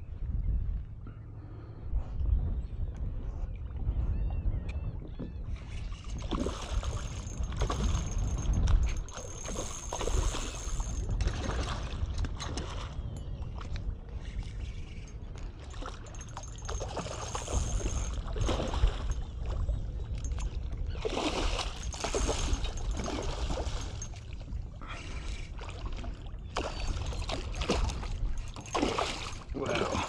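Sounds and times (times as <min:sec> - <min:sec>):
fish thrashing and splashing: 0:06.1 - 0:12.9, 0:15.6 - 0:19.3, 0:21.0 - 0:24.4, 0:25.1 - 0:30.0.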